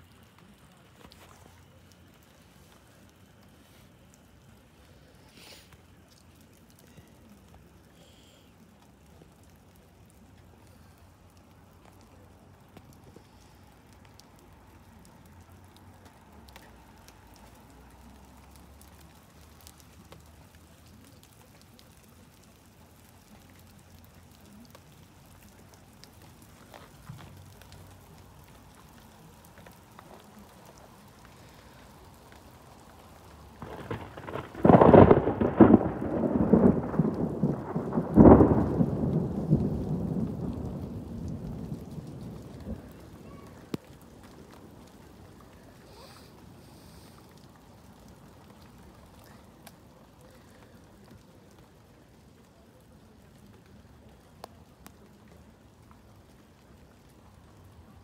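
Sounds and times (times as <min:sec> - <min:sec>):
thunder rumbling: 0:31.1 - 0:50.2.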